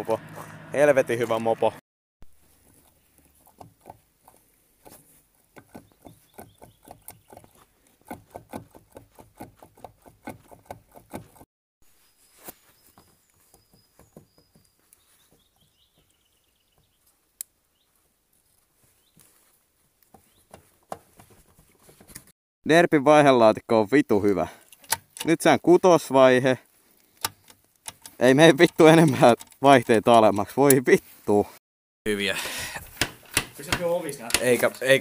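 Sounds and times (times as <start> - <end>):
tool clicking and scraping on metal: 32.8 - 34.7.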